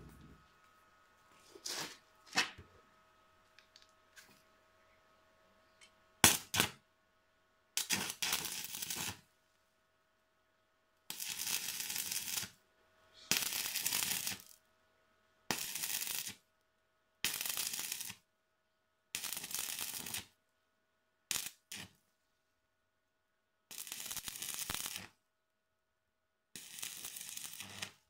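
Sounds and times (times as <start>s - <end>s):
crackling welding arc: 6.2s - 6.8s, 7.8s - 9.2s, 11.1s - 12.6s, 13.3s - 14.6s, 15.5s - 16.4s, 17.2s - 18.2s, 19.1s - 20.3s, 21.3s - 21.9s, 23.7s - 25.1s, 26.6s - 28.0s.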